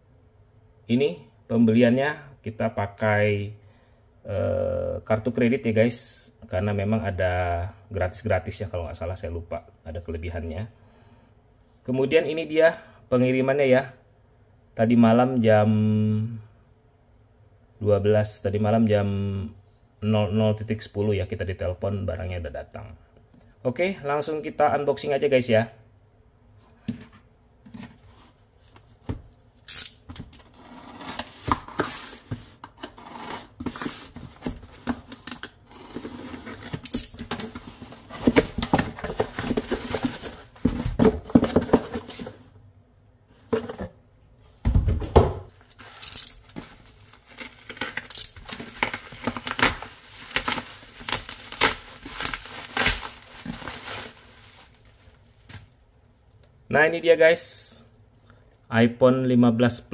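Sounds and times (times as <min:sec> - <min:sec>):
packaging rustling: 0:30.3 - 0:42.4, 0:45.6 - 0:55.8.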